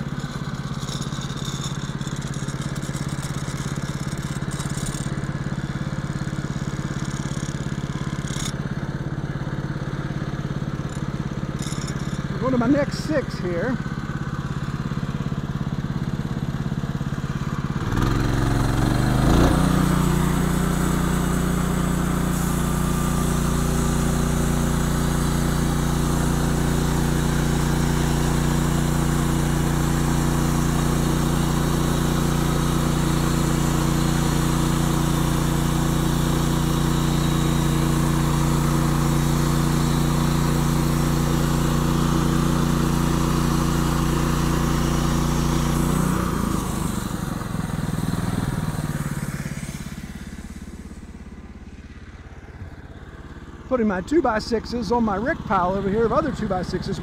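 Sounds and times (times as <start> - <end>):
band blade sawing log: 0.0 - 8.6, 10.8 - 13.8, 17.8 - 51.1
sawmill gas engine running: 0.0 - 57.0.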